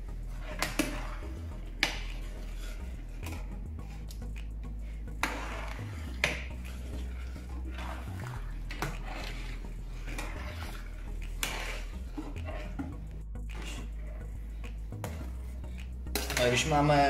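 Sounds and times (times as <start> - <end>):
low hum: 0.0 - 16.4
metal spatula scraping pan: 0.3 - 3.4, 5.2 - 12.9.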